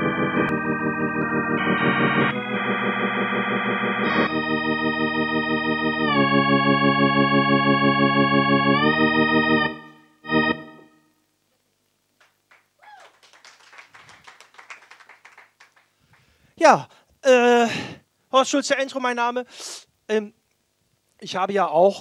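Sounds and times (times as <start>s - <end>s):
keyboard organ chord: 0.0s - 11.2s.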